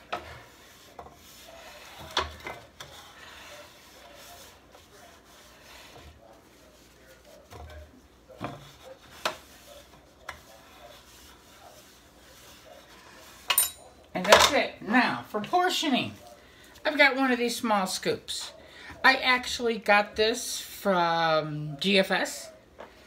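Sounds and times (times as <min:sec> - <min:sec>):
hands wiping metal pan: 0:00.0 - 0:13.5.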